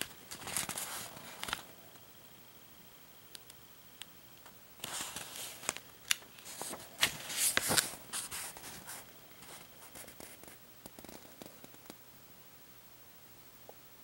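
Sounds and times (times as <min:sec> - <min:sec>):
paper pages rustling: 0:00.0 - 0:01.8, 0:04.8 - 0:11.8
booklet clicks: 0:00.3 - 0:01.7.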